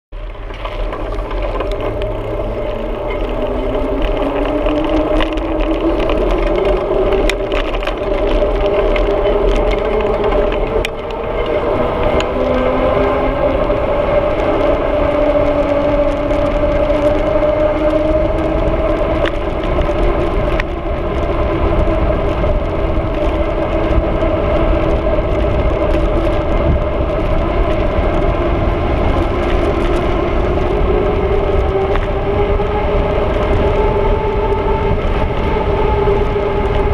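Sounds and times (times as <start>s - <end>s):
bicycle tyres humming on asphalt: 0.1s - 36.9s
wind rumble on microphone: 0.2s - 36.9s.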